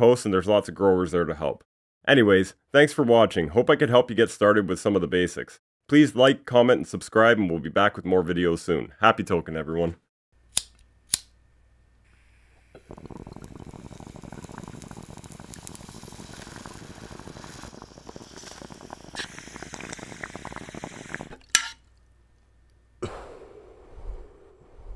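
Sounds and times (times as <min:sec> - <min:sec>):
water bong bubbling: 0:12.1 - 0:21.7.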